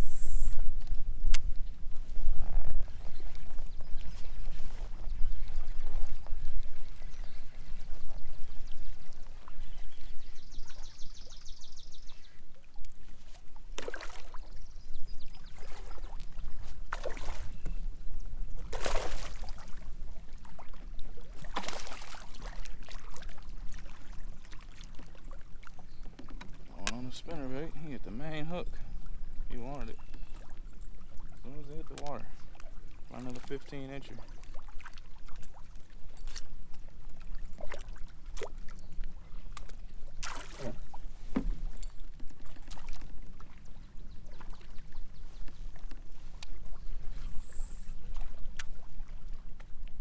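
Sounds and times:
wind rumble on microphone: 0:00.0 - 0:21.4
water sloshing: 0:13.0 - 0:49.9
fish splashing at water surface: 0:18.7 - 0:19.8, 0:21.4 - 0:23.2, 0:40.2 - 0:40.9.

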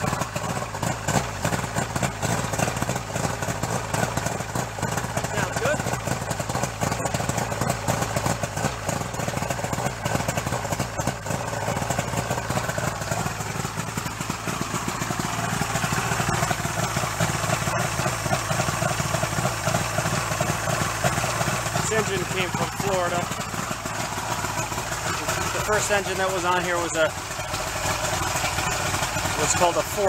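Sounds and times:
outboard motor idling: 0:00.0 - 0:30.0.

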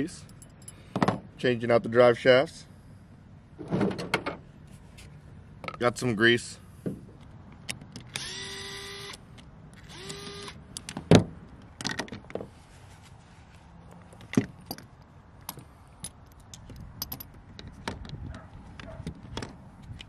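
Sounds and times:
small metal parts clinking on a mat: 0:00.3 - 0:01.2, 0:15.5 - 0:17.8
cordless electric screwdriver running: 0:08.2 - 0:09.2, 0:09.8 - 0:10.6.

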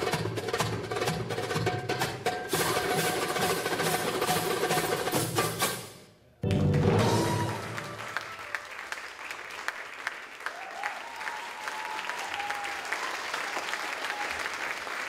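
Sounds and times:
music: 0:00.0 - 0:08.3
crowd cheering: 0:06.3 - 0:15.0
audience applauding: 0:06.4 - 0:15.0.

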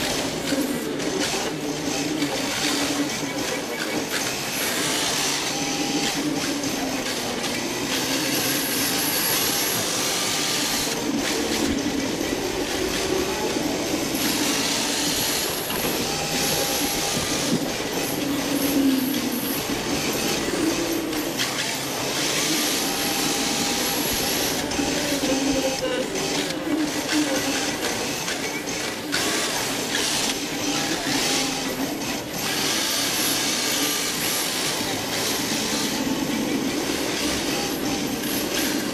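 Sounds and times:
electric motor whine: 0:04.2 - 0:38.9.

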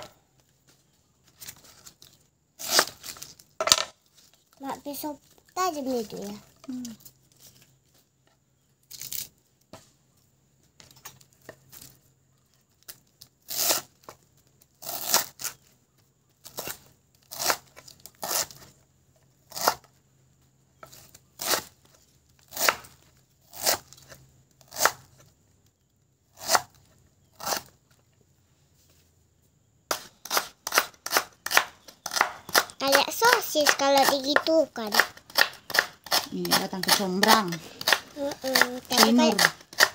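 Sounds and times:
knife chopping on wooden board: 0:29.9 - 0:39.9.

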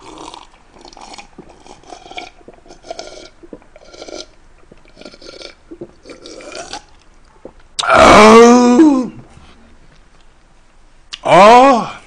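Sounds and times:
person gulping a drink: 0:00.0 - 0:07.9.

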